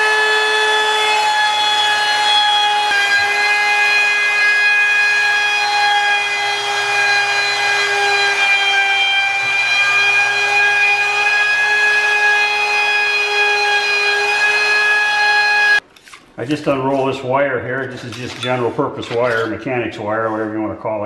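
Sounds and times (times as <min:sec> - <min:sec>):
electric router whining: 0:00.0 - 0:15.8.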